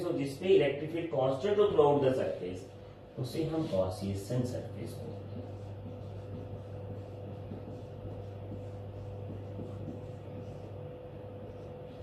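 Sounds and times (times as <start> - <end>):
marker writing on whiteboard: 3.4 - 12.0
low hum: 4.5 - 12.0.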